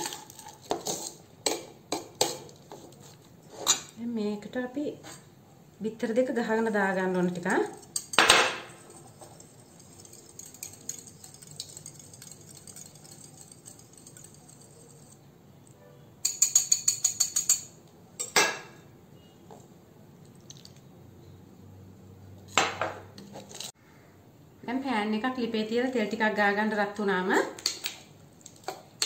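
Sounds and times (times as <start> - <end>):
whisk beating eggs in glass bowl: 8.8 - 15.2.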